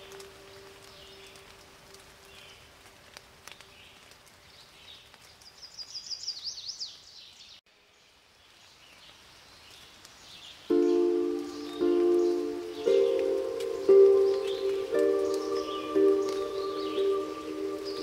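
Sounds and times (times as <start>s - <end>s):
faint outdoor ambience: 0.0s - 18.0s
quiet hiss: 0.0s - 18.0s
bird chirps: 10.7s - 18.0s
bird singing high sweeping notes: 10.7s - 18.0s.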